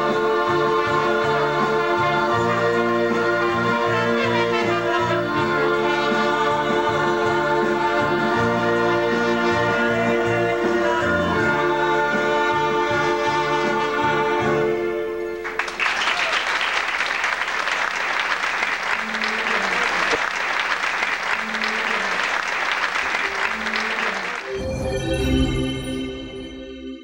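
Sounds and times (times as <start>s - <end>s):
trumpet and keyboard chord: 0.0s - 15.8s
audience applauding: 15.4s - 24.6s.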